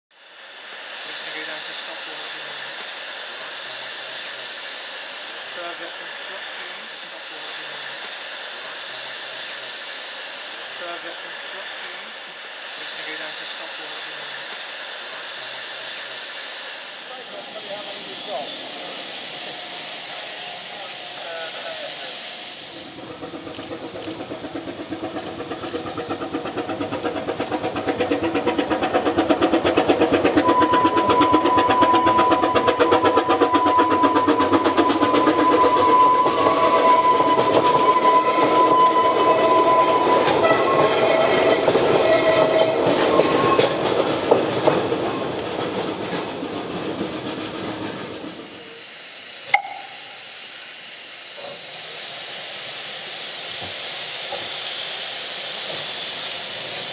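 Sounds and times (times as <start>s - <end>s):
steam hiss: 0.1s - 56.9s
steam locomotive exhaust beats: 0.1s - 56.9s
train wheel noise: 0.2s - 56.9s
steady high-pitched tone: 16.9s - 25.3s, 30.4s - 40.0s, 49.5s - 50.4s.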